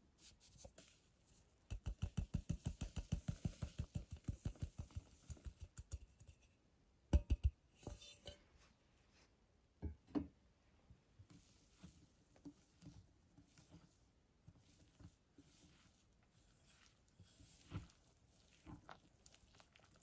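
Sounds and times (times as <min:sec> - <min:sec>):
whisk knocking against glass bowl: 0:01.7 - 0:06.4, 0:07.1 - 0:07.6.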